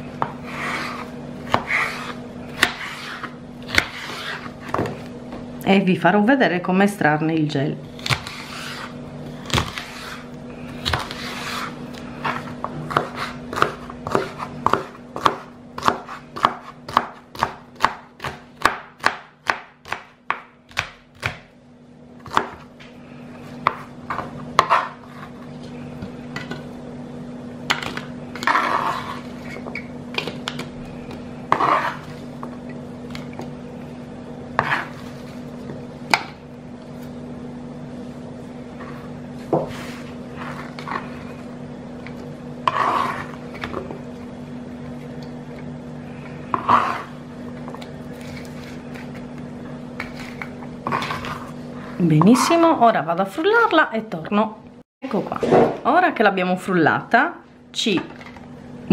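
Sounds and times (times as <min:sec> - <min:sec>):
knife chopping on plastic cutting board: 0:00.2 - 0:05.0, 0:08.0 - 0:10.2, 0:10.8 - 0:21.5, 0:22.2 - 0:22.7, 0:23.6 - 0:25.2.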